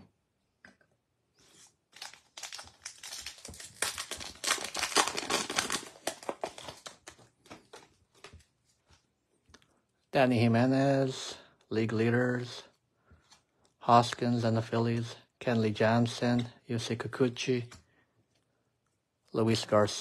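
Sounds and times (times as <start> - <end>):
card pack wrapper crinkling: 1.5 - 8.5.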